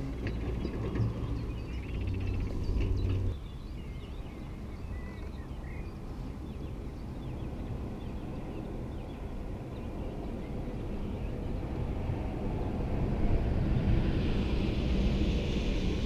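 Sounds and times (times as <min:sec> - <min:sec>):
wind rumble on microphone: 0:00.0 - 0:16.0
small birds chirping: 0:00.2 - 0:11.6.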